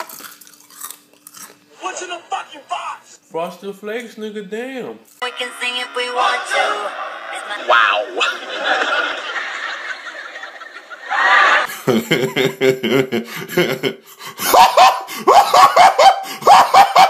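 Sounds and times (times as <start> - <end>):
man laughing: 7.6 - 17.0.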